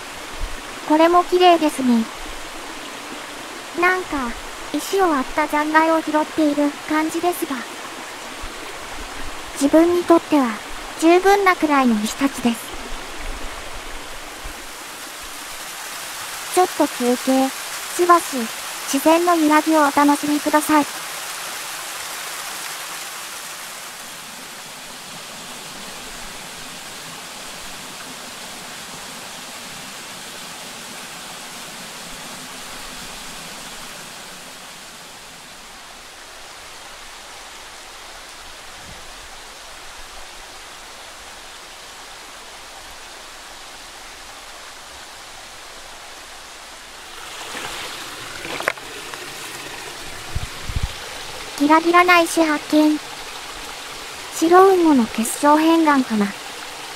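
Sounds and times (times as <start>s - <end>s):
waterfall splashing: 0.0s - 56.9s
stones clacking: 47.4s - 49.3s.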